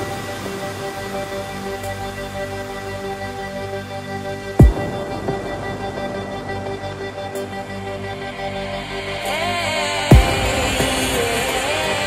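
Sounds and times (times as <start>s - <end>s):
sustained music chords: 0.0s - 12.0s.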